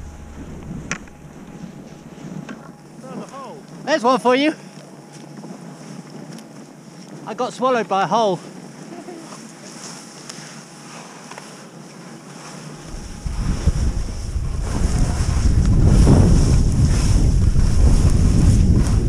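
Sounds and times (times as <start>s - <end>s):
wind rushing over microphone: 0.0s - 2.8s, 12.8s - 19.0s
skis scraping over snow: 8.3s - 19.0s.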